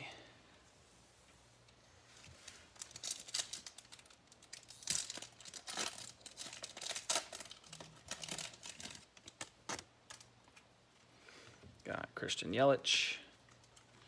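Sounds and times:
wrapper tearing and crinkling: 0:02.2 - 0:10.3.

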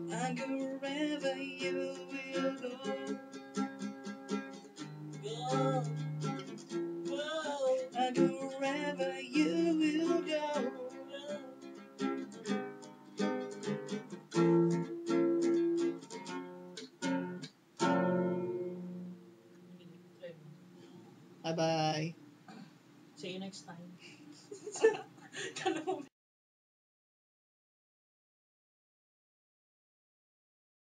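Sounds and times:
man singing: 0:00.0 - 0:03.2, 0:05.2 - 0:06.0, 0:07.1 - 0:11.8
acoustic guitar strumming: 0:00.0 - 0:22.3.

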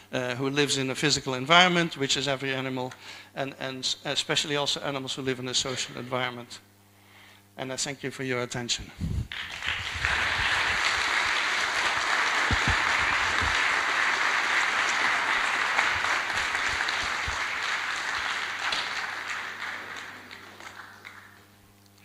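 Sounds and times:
audience applauding: 0:09.3 - 0:21.6.

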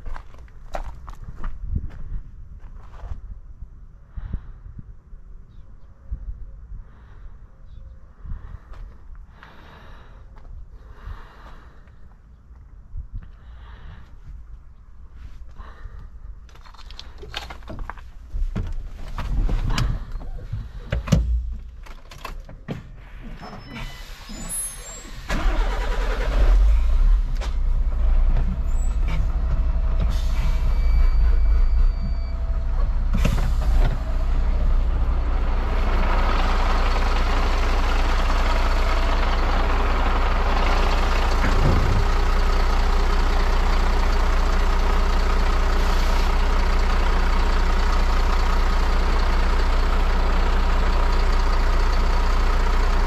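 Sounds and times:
diesel engine starting and idling: 0:18.7 - 0:53.0
engine knocks: 0:25.3 - 0:53.0.

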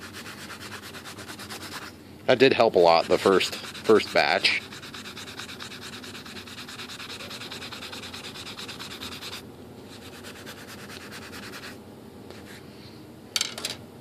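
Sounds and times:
sanding sponge rubbing rod: 0:00.0 - 0:01.9, 0:02.6 - 0:11.8.

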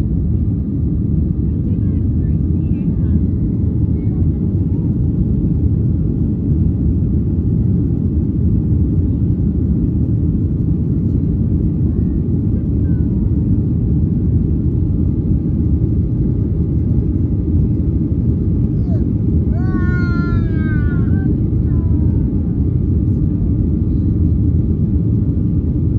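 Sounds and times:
airplane cabin engine rumble: 0:00.0 - 0:25.9.

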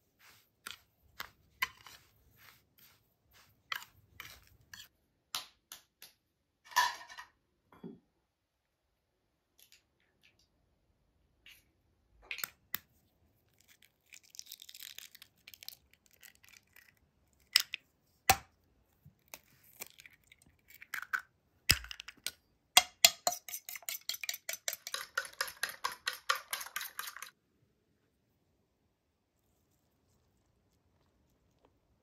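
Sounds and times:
fork beating eggs in bowl: 0:00.2 - 0:04.9, 0:22.8 - 0:27.4.

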